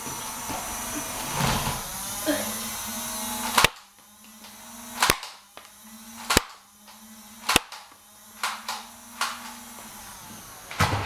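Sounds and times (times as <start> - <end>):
foam-dart blaster pops: 3.5 - 3.9, 5.0 - 5.4, 6.2 - 6.6, 7.4 - 9.5.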